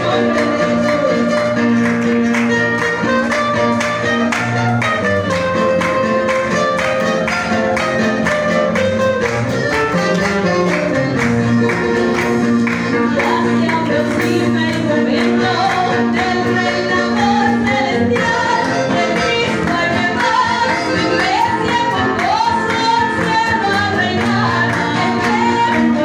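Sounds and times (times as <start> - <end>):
woman singing into microphone: 0.0 - 1.8, 12.9 - 26.0
acoustic guitars strumming: 0.0 - 26.0
keyboard: 0.0 - 26.0.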